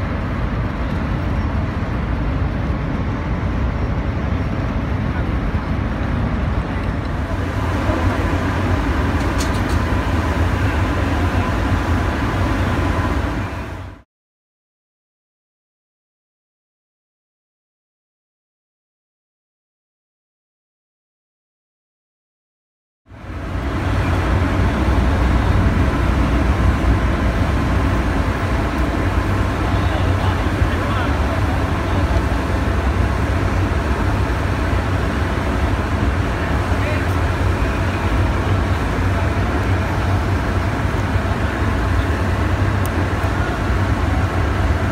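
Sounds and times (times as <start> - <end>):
low harbour rumble: 0.0 - 14.0, 23.1 - 44.9.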